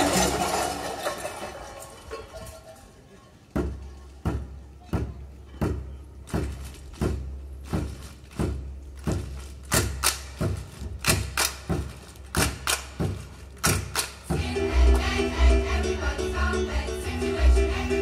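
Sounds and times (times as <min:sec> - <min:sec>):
percussion beat: 0:03.6 - 0:16.0
band playing: 0:14.4 - 0:18.0.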